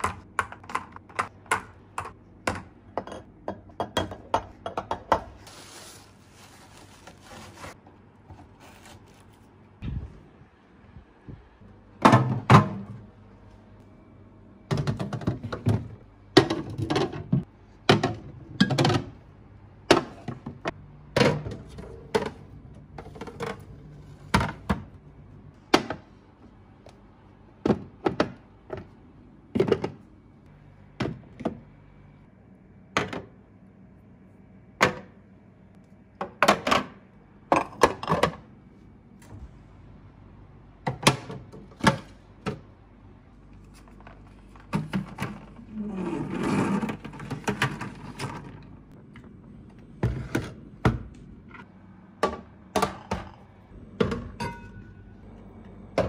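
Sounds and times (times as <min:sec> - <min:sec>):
plastic containers knocking on glass shelves: 0:14.7 - 0:19.2.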